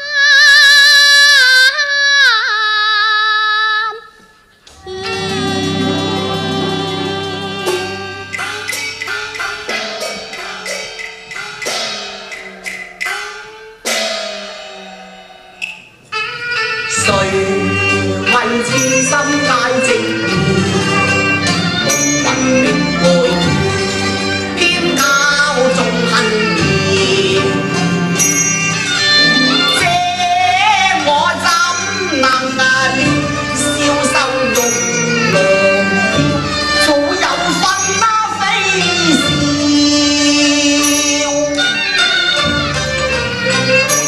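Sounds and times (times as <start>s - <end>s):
person singing opera aria: 0.0s - 8.6s, 16.9s - 21.4s, 22.2s - 28.3s, 29.0s - 41.8s
held instrumental notes: 4.2s - 44.0s
opera ensemble playing: 4.6s - 44.0s
ringing metal percussion: 4.8s - 44.0s
wood block strikes: 7.7s - 16.1s.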